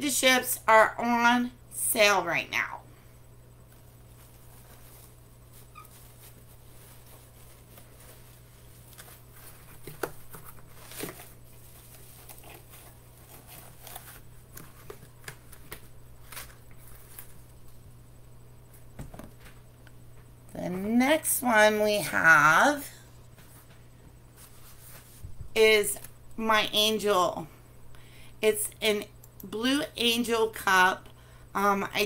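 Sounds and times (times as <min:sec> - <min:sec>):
steady low hum: 0:00.0 - 0:32.0
rustling: 0:02.9 - 0:17.9, 0:23.3 - 0:25.6.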